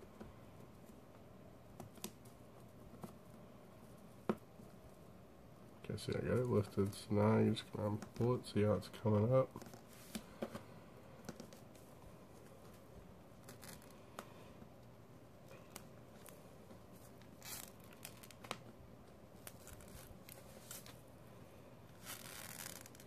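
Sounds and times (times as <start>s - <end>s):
glue film peeling off crackling: 13.4s - 14.0s, 17.2s - 18.7s, 22.0s - 23.0s.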